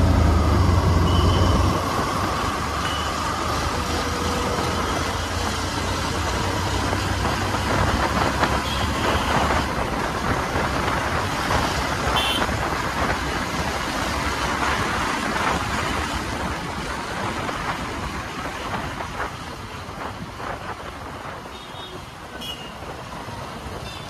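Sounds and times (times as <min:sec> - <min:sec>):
wind and road noise: 0:00.0 - 0:24.0
short high beep: 0:01.0 - 0:01.7.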